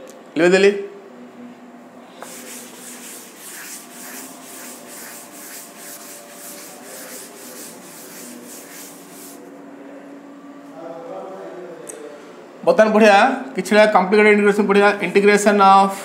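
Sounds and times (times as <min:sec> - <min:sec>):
eraser scrubbing chalkboard: 0:02.2 - 0:09.5.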